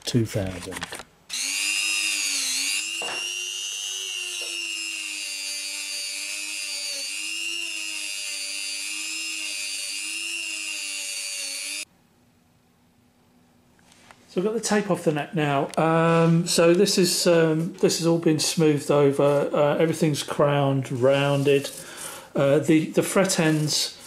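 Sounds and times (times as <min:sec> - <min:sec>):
rotary tool whining on metal: 0:01.3 - 0:11.9.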